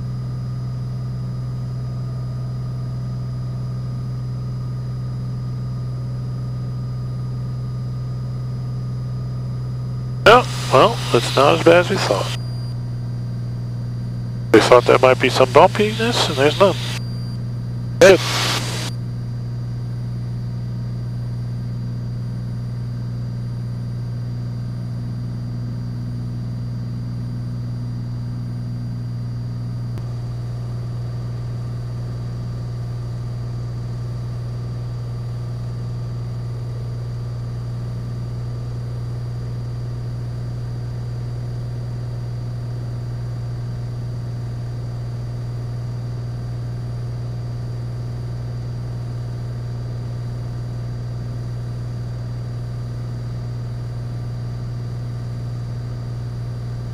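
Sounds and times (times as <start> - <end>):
propeller plane engine drone: 10.3 - 12.7, 14.2 - 17.2.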